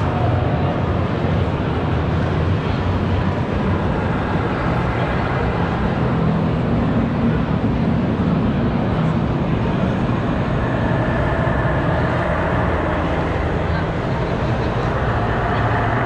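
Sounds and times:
crowd hubbub in a hall: 0:00.0 - 0:16.0.

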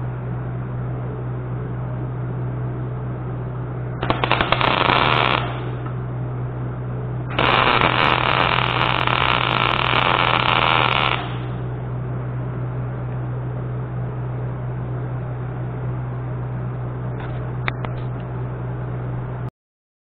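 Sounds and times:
steady low hum: 0:00.0 - 0:19.5
welding arc crackling and sizzling: 0:04.0 - 0:06.0, 0:07.3 - 0:11.6.

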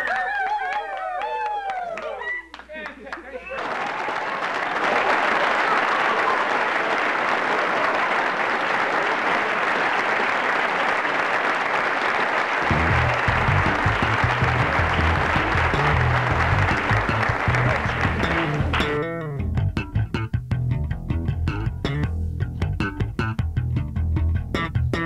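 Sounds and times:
crowd applause: 0:00.0 - 0:19.0
bass guitar line: 0:12.6 - 0:25.0.

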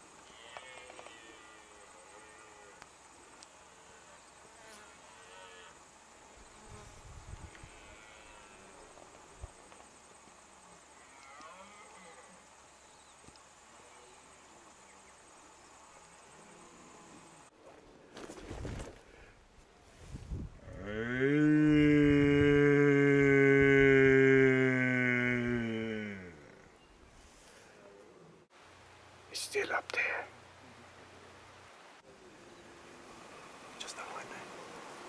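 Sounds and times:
high insect trill: 0:00.0 - 0:17.5.

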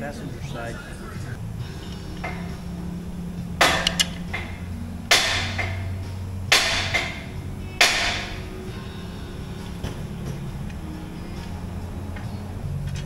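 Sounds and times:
low steady hum: 0:00.0 - 0:13.0
sharp ringing hits: 0:01.5 - 0:10.2.

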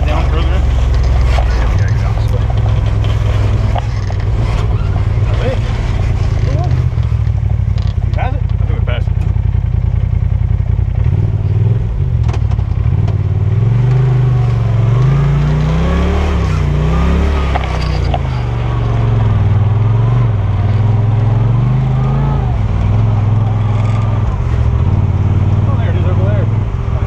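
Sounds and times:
engine revving under throttle: 0:10.9 - 0:27.0.

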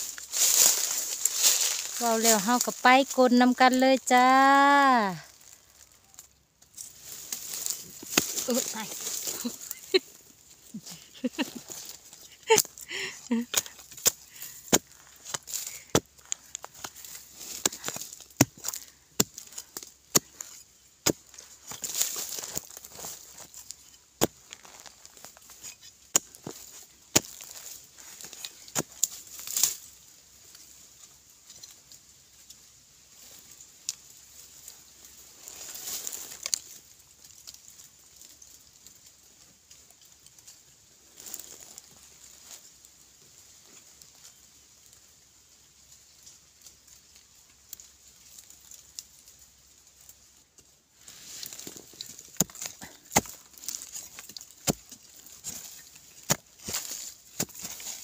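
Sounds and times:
scraping in soil: 0:00.0 - 0:45.0, 0:46.0 - 0:58.0
loose soil pattering: 0:00.0 - 0:58.0
tool striking earth: 0:06.6 - 0:30.0, 0:51.0 - 0:58.0.

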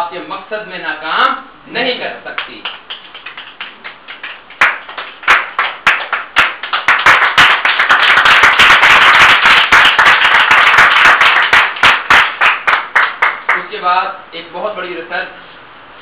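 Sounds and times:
people clapping: 0:02.4 - 0:13.7.

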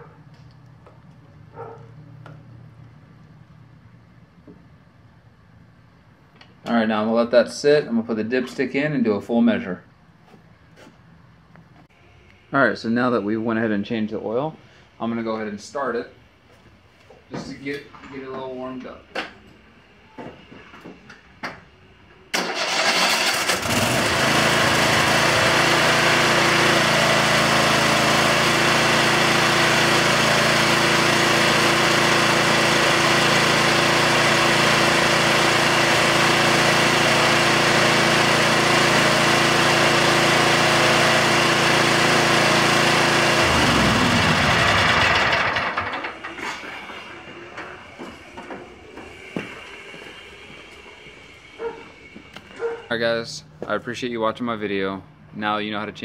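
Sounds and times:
mower engine starting and running: 0:22.3 - 0:52.9
engine spinning down: 0:22.4 - 0:53.0.

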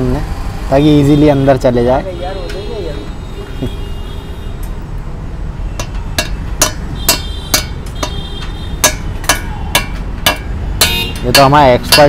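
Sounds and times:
hammer knocks with metallic ring: 0:05.8 - 0:08.2, 0:08.8 - 0:12.0.

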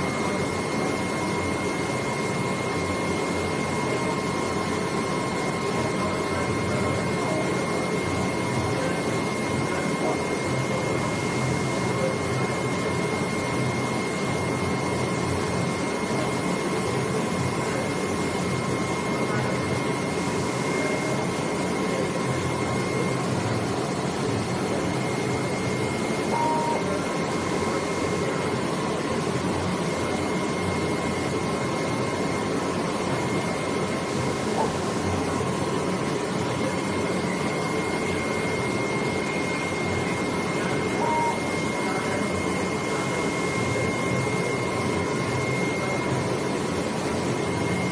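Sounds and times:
faint high whines: 0:00.0 - 0:29.2, 0:29.8 - 0:47.9.

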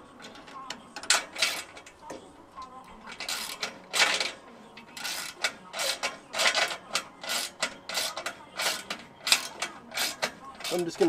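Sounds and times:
ratchet wrench clicking: 0:03.1 - 0:10.9.

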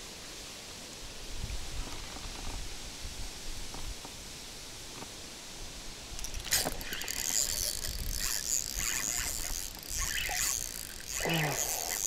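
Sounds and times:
fishing reel whirring and ticking: 0:06.2 - 0:12.0
person grunting: 0:11.2 - 0:12.0.

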